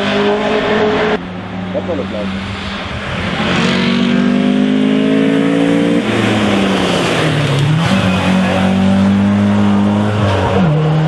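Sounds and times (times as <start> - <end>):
race car engine at high revs: 0.0 - 11.0.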